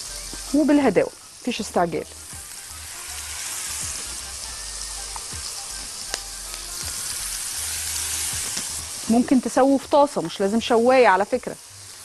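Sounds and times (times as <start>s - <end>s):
meat sizzling on grill pan: 0.0s - 12.0s.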